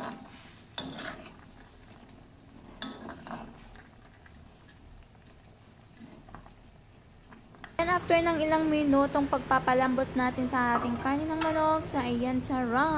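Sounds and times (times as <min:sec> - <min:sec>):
metal ladle scraping a pan: 0:00.0 - 0:04.4
faint bubbling broth: 0:00.0 - 0:07.8.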